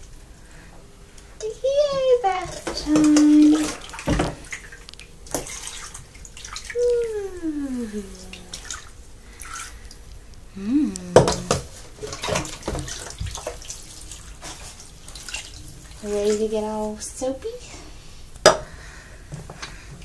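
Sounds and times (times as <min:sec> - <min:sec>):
bath water splashing: 0:01.4 - 0:10.1, 0:11.1 - 0:17.6
voice gliding down in pitch: 0:06.8 - 0:08.6.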